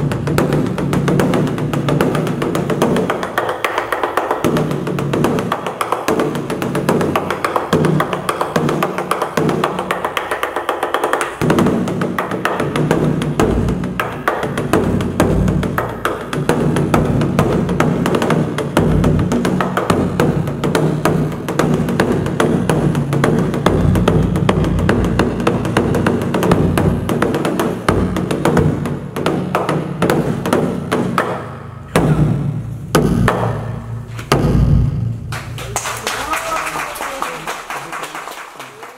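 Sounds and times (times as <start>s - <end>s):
barrel drum booming roll: 0.0s - 3.3s, 11.4s - 35.3s
drumstick clacks: 0.0s - 34.6s.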